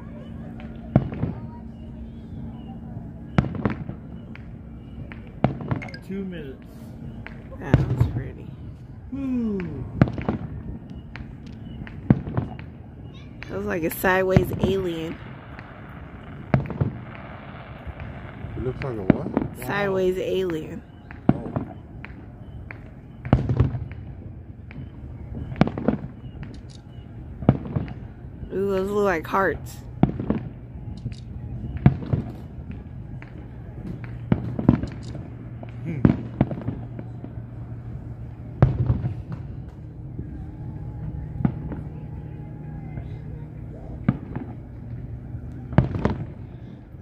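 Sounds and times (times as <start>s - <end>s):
steady low hum: 0.0s - 47.0s
fireworks booming: 0.6s - 1.8s, 3.2s - 8.6s, 9.4s - 30.9s, 31.6s - 43.3s, 43.9s - 46.9s
fireworks popping: 9.5s - 28.1s, 28.7s - 37.8s, 38.4s - 39.9s, 44.0s - 46.4s.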